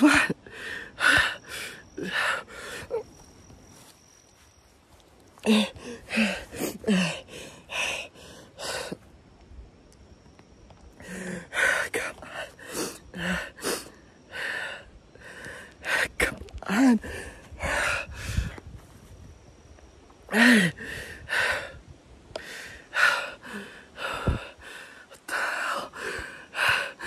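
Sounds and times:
man gasping and panting: 0:05.4 - 0:09.0.

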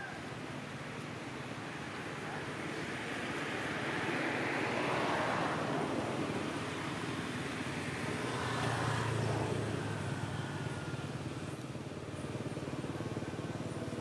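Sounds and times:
road traffic noise: 0:00.0 - 0:14.0
vehicle engine passing: 0:03.0 - 0:14.0.

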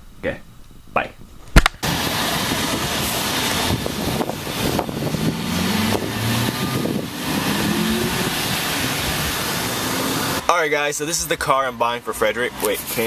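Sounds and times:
outdoor noise: 0:00.0 - 0:13.0
sharp click: 0:01.5 - 0:01.8
car engine running: 0:01.8 - 0:10.6.

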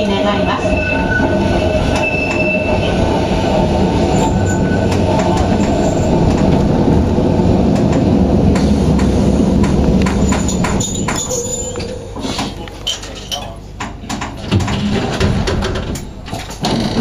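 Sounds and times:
electric train running rumble: 0:00.0 - 0:13.0, 0:13.6 - 0:17.0
wheel squeal: 0:00.5 - 0:03.0, 0:04.1 - 0:06.0
wheels clicking over rail joints: 0:07.6 - 0:17.0.

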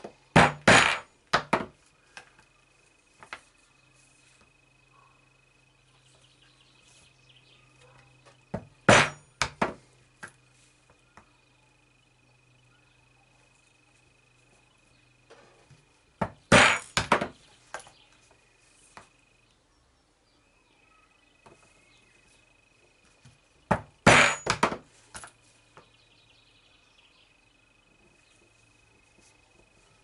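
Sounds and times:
hammer striking steel punch: 0:08.9 - 0:09.7, 0:16.5 - 0:17.2, 0:24.0 - 0:24.8.

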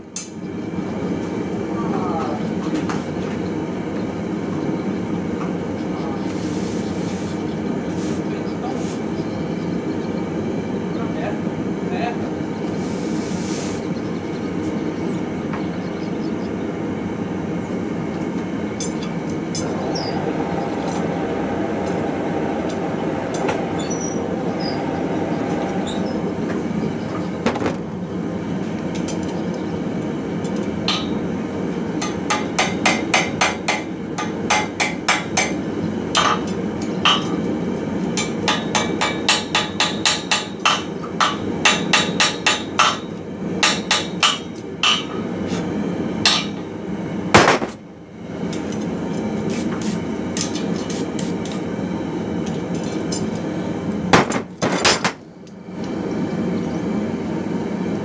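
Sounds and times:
hammer striking metal: 0:32.0 - 0:35.6, 0:38.2 - 0:45.2, 0:46.2 - 0:46.6.

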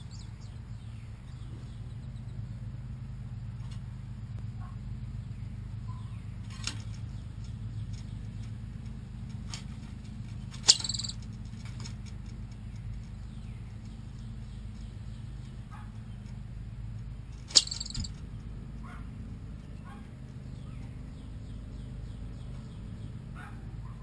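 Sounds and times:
steady low hum: 0:00.0 - 0:24.0
chipmunk chip: 0:10.6 - 0:11.2, 0:17.3 - 0:18.2
faint clicks and chirps: 0:11.8 - 0:15.6.

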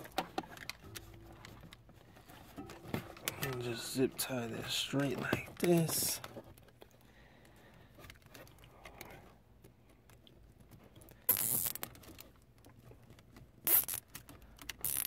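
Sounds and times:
wires rustling and clicking: 0:00.0 - 0:15.0
zip tie ratcheting: 0:11.3 - 0:12.0, 0:13.6 - 0:15.0.

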